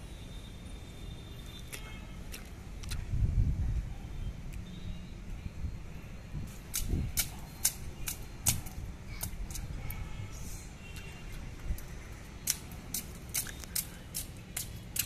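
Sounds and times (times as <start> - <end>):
bare feet splashing on wet concrete: 6.5 - 10.0, 10.8 - 15.0.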